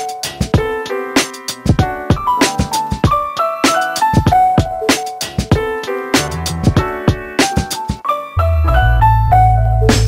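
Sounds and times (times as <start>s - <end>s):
keyboard notes: 0.0s - 10.0s
drum beat: 1.5s - 3.3s, 4.0s - 8.0s.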